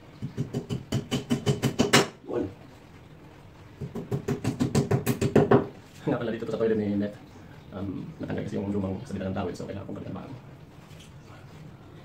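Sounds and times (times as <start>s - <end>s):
rapid knocks on metal bracket: 0.2s - 2.2s.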